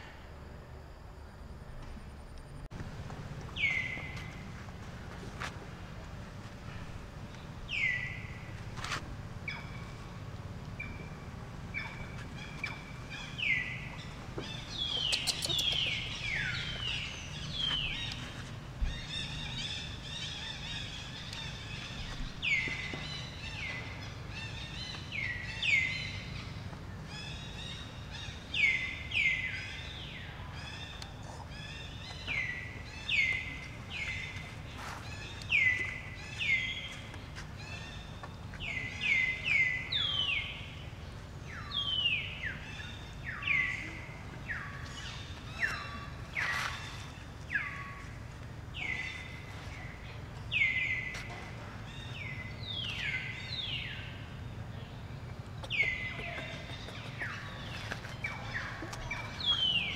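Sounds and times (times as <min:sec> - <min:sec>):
low outdoor rumble: 0:00.0 - 0:59.9.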